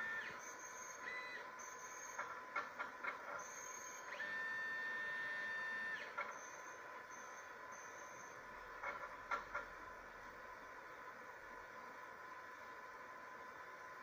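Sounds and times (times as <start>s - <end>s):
motor whine: 0.0s - 1.9s, 3.5s - 8.4s
faint constant tone: 0.0s - 14.0s.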